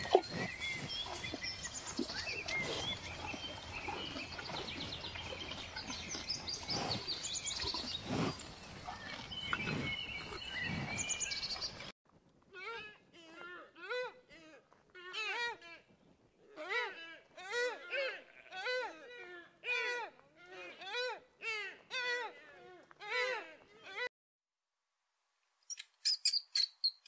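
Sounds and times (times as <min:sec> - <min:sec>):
small birds chirping: 0:00.0 - 0:11.9, 0:25.6 - 0:27.0
wavering bleating animal call: 0:16.5 - 0:22.4.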